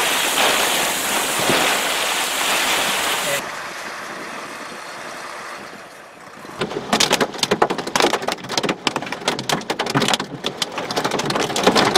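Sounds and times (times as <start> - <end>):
heavy rain hitting hard surface: 0.0 - 3.4
wind and rain rushing: 0.0 - 5.5.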